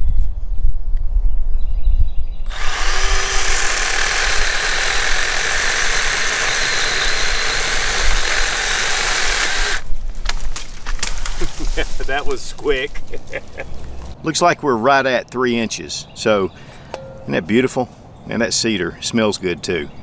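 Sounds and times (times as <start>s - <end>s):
mini chainsaw cutting wood: 2.5s - 9.9s.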